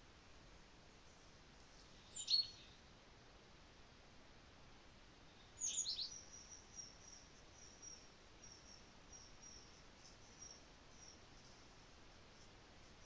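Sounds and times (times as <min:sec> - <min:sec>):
songbird chirping: 0:01.8 - 0:02.9, 0:05.4 - 0:13.0.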